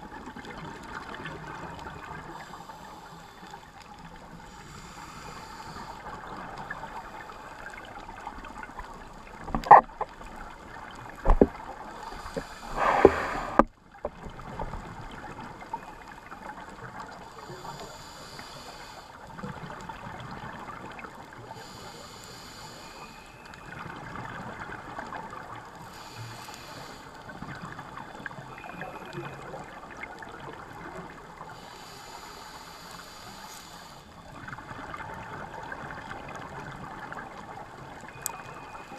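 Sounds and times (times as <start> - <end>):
watery hiss: 4.4 - 6.3, 11.8 - 13.7, 17.2 - 19.2, 21.4 - 23.5, 25.8 - 27.7, 31.4 - 34.3.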